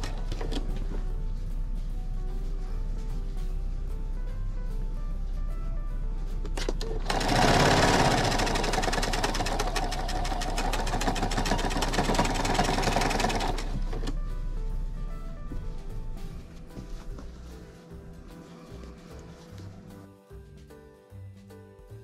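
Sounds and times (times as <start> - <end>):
electric sewing machine stitching: 6.8 - 14.2.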